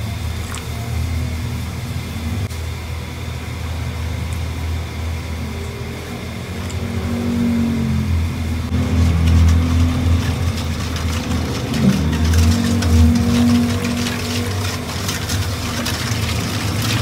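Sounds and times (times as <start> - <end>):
steady low hum: 0.0 - 17.0
liquid sloshing in a steel bowl: 8.7 - 17.0.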